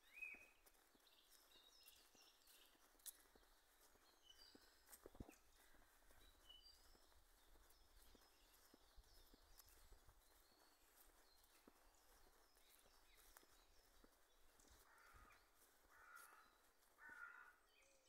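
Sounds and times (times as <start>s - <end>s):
faint woodland birdsong: 0.0s - 18.0s
footsteps on leaf-covered path: 0.0s - 18.0s.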